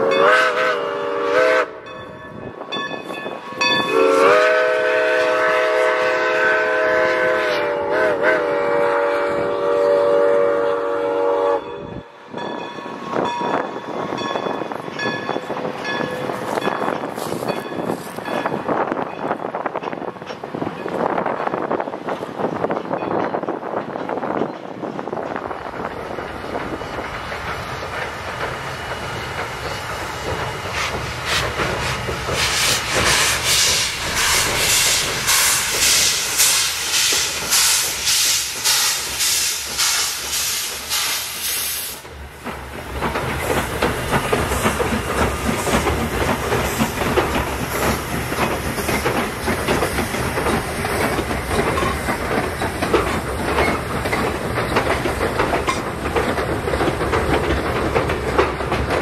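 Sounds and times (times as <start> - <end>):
steam locomotive exhaust chuffs: 3.0 - 12.0, 24.2 - 59.0
train wheels clattering: 9.6 - 59.0
hissing steam: 26.3 - 58.8.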